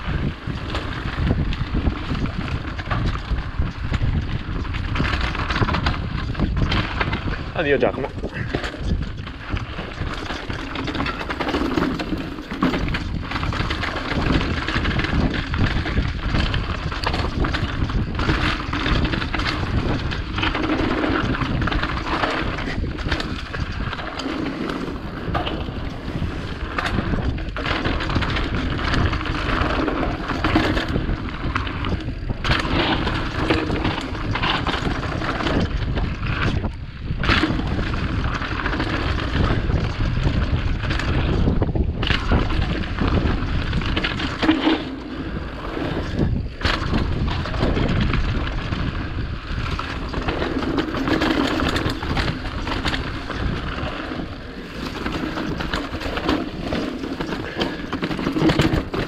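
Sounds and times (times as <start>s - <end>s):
bike knocking and rattling: 0.0s - 59.0s
wind noise on microphone: 0.0s - 59.0s
tyres crunching over stones: 49.6s - 59.0s.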